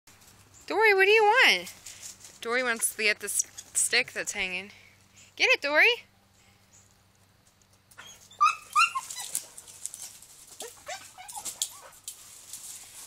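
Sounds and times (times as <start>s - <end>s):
leaves and brush rustling: 0.1s - 5.4s, 6.2s - 13.0s
dog whining: 8.0s - 12.0s.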